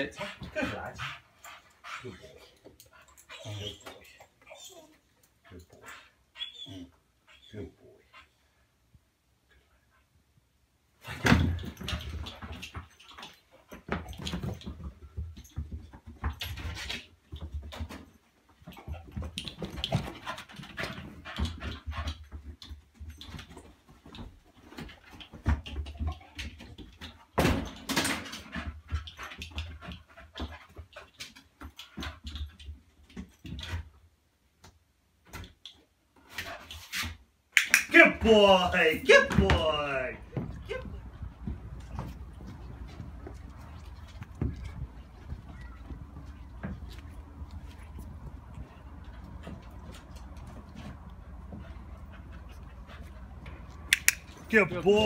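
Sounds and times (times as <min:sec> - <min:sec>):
paws scrabbling against furniture: 0:40.3 - 0:53.9.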